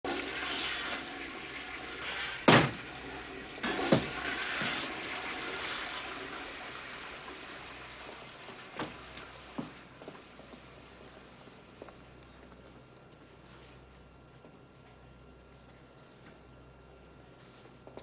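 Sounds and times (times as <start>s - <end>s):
toilet flushing: 0.0s - 11.8s.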